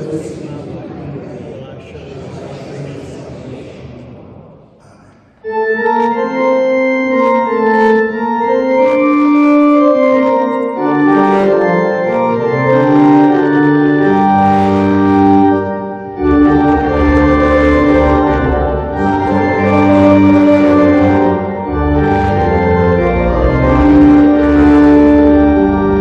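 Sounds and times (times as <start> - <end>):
church organ chords: 5.4 - 26.0
deep organ bass notes: 5.4 - 26.0.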